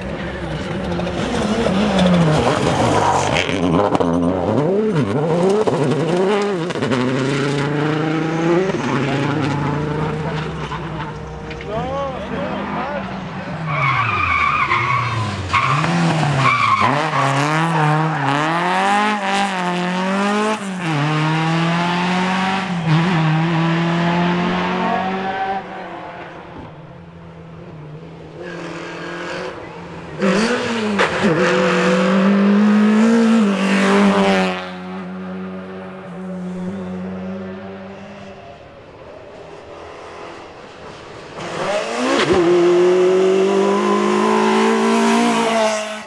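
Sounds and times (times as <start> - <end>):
rally car engines revving: 0.0 - 46.0
tyre squeal: 43.5 - 45.2.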